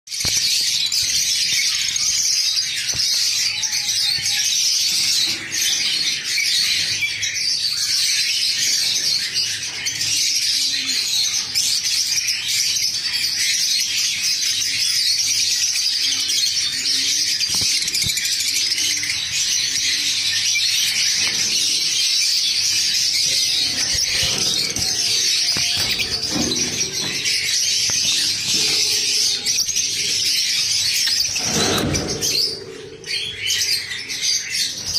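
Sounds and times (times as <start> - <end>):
parrots chirping: 20.2 - 34.9.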